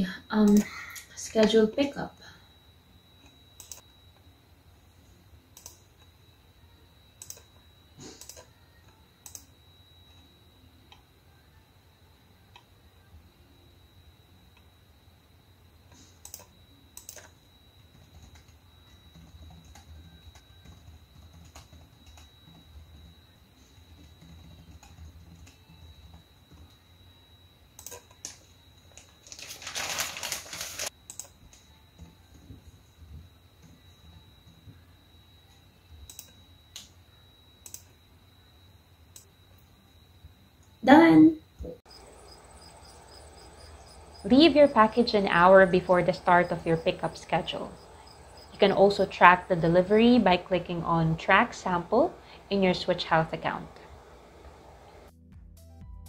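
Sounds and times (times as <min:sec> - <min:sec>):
faint high-pitched whine: 0:00.0 - 0:55.1
plastic bag crinkling: 0:29.2 - 0:30.9.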